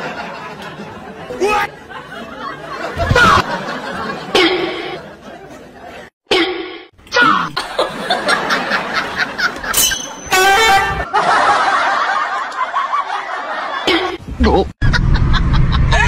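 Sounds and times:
laughter: 0.0 - 6.1, 7.6 - 9.8, 11.0 - 14.2, 14.8 - 16.0
short horn honk: 10.2 - 11.0.

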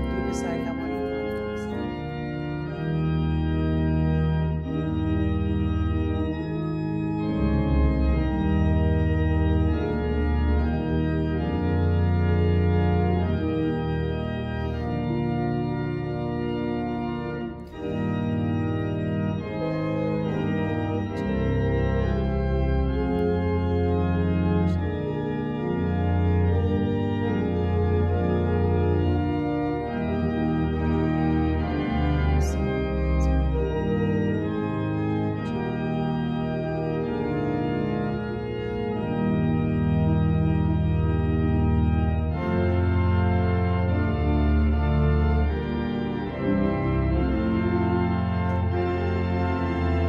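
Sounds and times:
church organ playing chords: 0.0 - 50.0.

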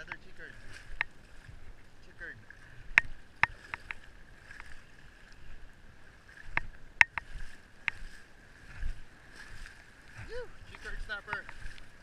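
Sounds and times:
sharp clicks and taps: 6.5 - 7.3, 10.7 - 11.6.

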